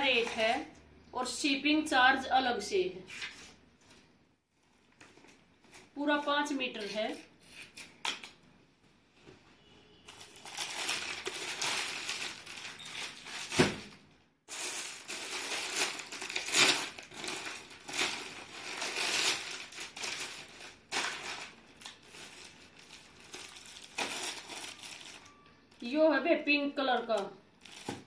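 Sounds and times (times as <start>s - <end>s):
cloth crinkling and rustling: 10.1s - 25.4s.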